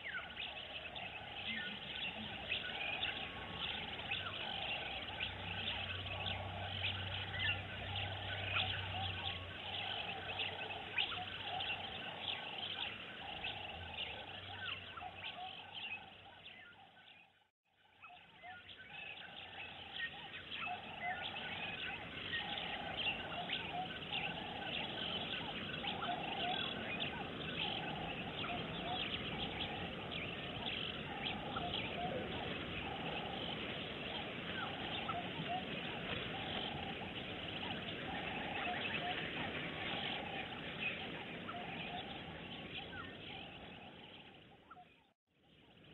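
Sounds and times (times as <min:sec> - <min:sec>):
birds chirping and calling: 0:00.0 - 0:17.4, 0:18.0 - 0:45.1
pulsing low chatter: 0:20.9 - 0:42.8.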